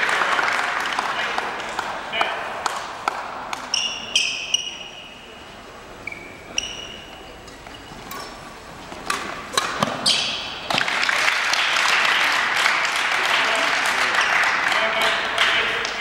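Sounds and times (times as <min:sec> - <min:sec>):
crowd applauding: 0:00.0 - 0:02.1, 0:10.8 - 0:16.0
racket striking shuttlecock: 0:01.4 - 0:04.7, 0:06.6 - 0:10.9
shoes squeaking on wooden floor: 0:06.0 - 0:08.3.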